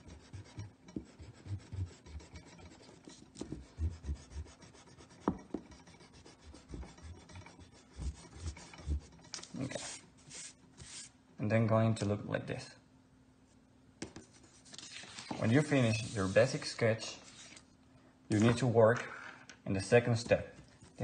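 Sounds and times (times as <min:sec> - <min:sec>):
eraser rubbing on paper: 0:00.0 - 0:11.2, 0:14.3 - 0:17.6.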